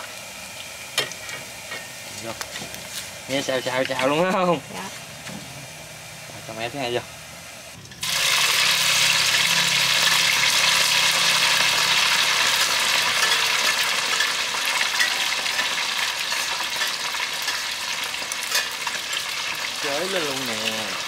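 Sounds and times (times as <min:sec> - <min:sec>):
fish sizzling in hot oil: 0:07.8 - 0:21.0.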